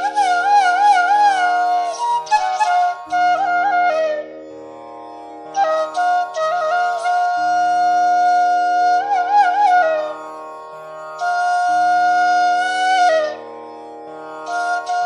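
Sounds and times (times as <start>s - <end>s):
ornamented melody line: 0.0s - 15.0s.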